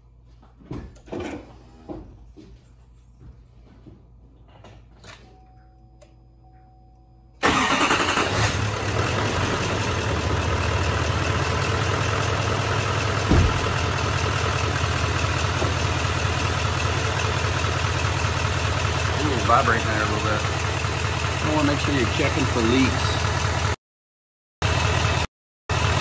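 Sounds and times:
diesel engine starting and idling: 0:07.4 - 0:23.8, 0:24.6 - 0:26.0
low bump: 0:13.2 - 0:14.0.

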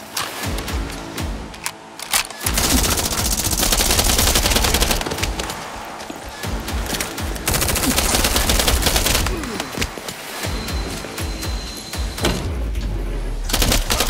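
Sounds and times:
background music: 0:00.0 - 0:14.0
automatic gunfire: 0:02.4 - 0:05.5, 0:13.5 - 0:14.0.

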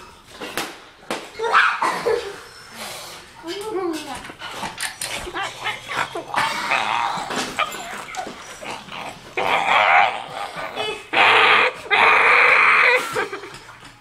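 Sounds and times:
child growling: 0:05.2 - 0:13.4.

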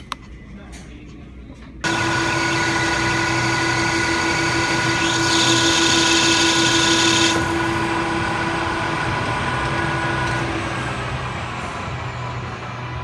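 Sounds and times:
lathe whining: 0:01.8 - 0:12.0.

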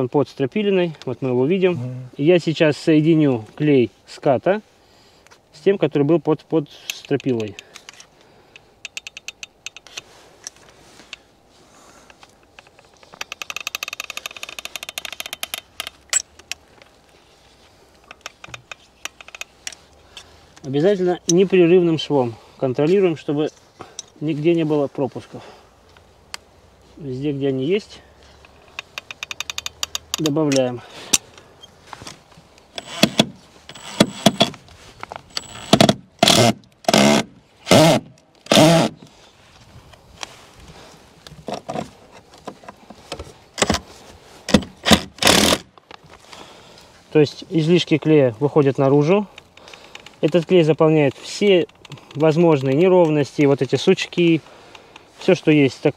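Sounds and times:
caulking gun clicking: 0:08.6 - 0:10.6, 0:18.1 - 0:19.8, 0:28.4 - 0:31.2
impact driver driving screws: 0:32.7 - 0:34.6, 0:35.3 - 0:39.0, 0:44.5 - 0:45.7.

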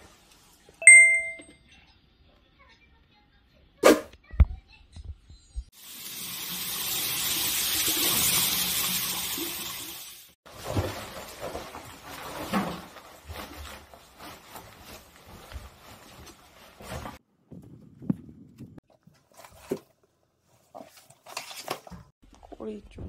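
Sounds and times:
fabric rustling: 0:10.5 - 0:17.2.

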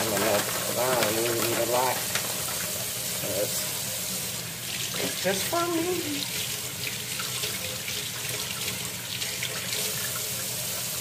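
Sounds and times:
shrimp sizzling on a grill: 0:00.0 - 0:06.7.

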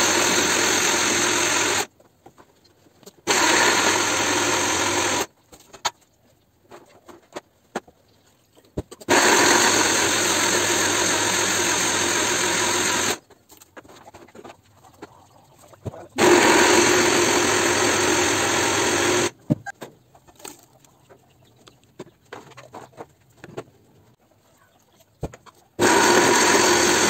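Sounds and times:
electric blender motor running: 0:00.0 - 0:01.9, 0:03.3 - 0:05.3, 0:09.1 - 0:13.2, 0:16.2 - 0:19.4, 0:25.8 - 0:27.0.

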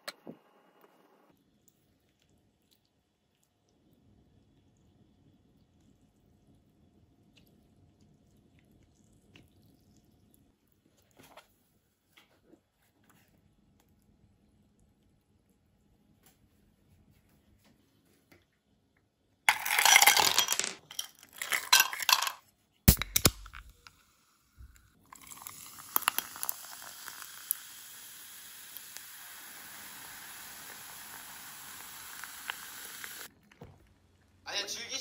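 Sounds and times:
ice cubes clattering into glass: 0:19.5 - 0:22.4
soda fizzing: 0:24.6 - 0:33.8.

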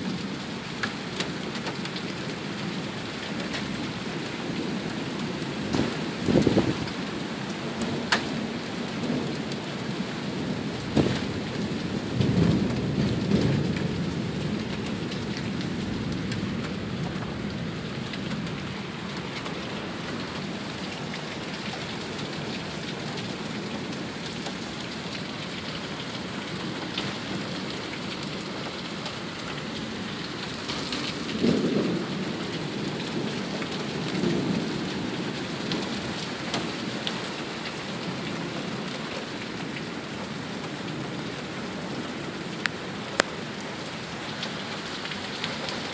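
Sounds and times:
heavy rain pouring: 0:00.0 - 0:45.9
low rumbles of thunder: 0:10.0 - 0:19.0, 0:30.9 - 0:36.8.

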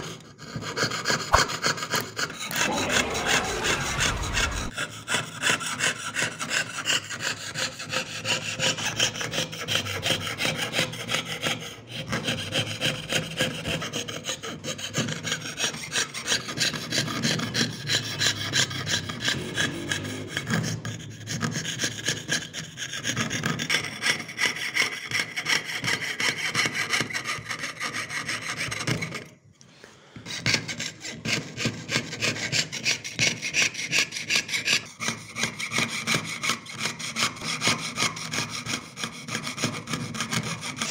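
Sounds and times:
saw cutting sheet metal: 0:06.7 - 0:24.0.

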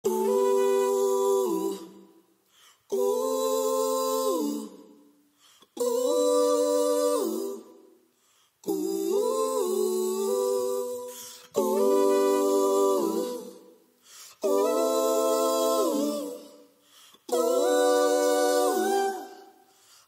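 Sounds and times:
voices humming in harmony: 0:11.6 - 0:13.6, 0:14.4 - 0:16.5, 0:17.3 - 0:19.5.

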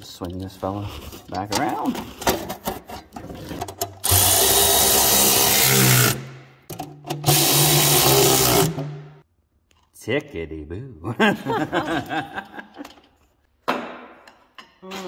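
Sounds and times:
electric ratchet spinning bolts: 0:04.0 - 0:06.3, 0:07.1 - 0:08.9.

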